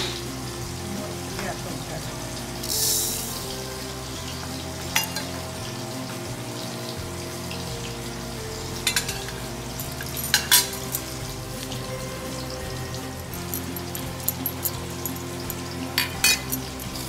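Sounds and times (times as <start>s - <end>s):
soft instrumental music: 0.0s - 17.0s
seeds poured into grinder jar: 2.6s - 3.5s
metal clinks: 8.8s - 12.5s, 13.2s - 17.0s.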